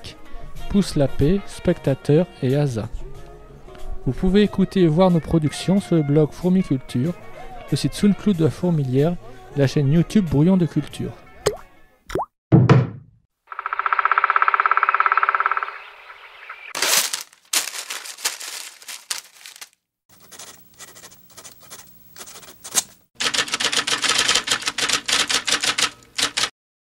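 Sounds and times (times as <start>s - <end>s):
rapid clicking and rattling: 23.2s - 26.5s.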